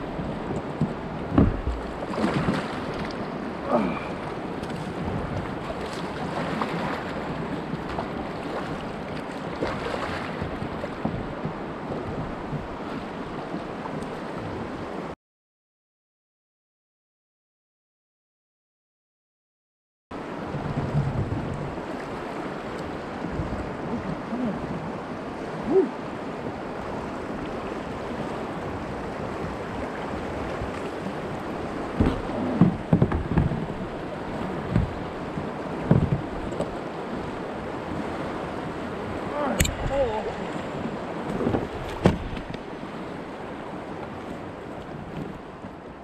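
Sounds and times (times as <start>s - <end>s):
river current rushing: 0.0s - 13.8s, 21.6s - 45.7s
wind buffeting microphone: 20.3s - 45.8s.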